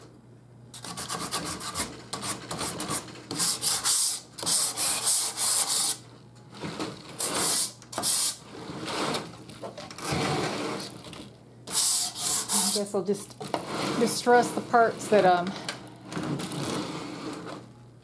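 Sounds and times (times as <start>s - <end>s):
sanding block on painted wood: 0.8s - 6.0s, 7.2s - 8.4s, 11.7s - 13.0s.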